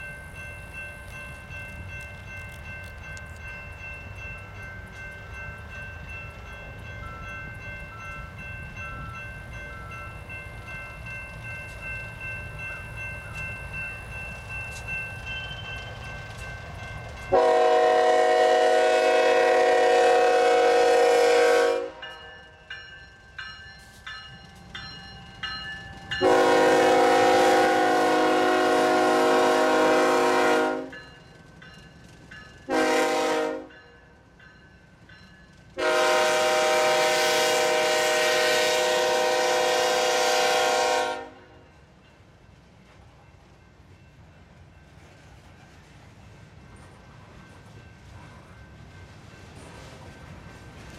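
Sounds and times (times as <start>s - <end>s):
locomotive air horn blasts: 17.3s - 22.0s, 26.2s - 31.0s, 32.7s - 33.7s, 35.8s - 41.5s.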